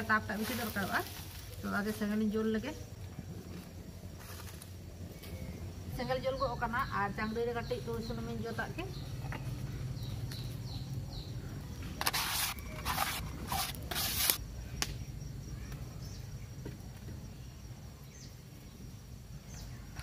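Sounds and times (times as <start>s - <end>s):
outdoor background noise: 0.0s - 20.0s
leaf scraping clay pot: 12.0s - 14.4s.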